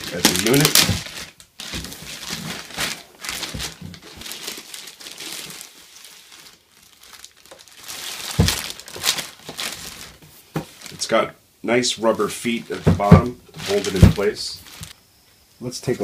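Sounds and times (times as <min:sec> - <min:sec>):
plastic bag crinkling: 0:00.0 - 0:11.2, 0:12.1 - 0:15.0
thump: 0:08.3 - 0:08.7, 0:12.8 - 0:13.4.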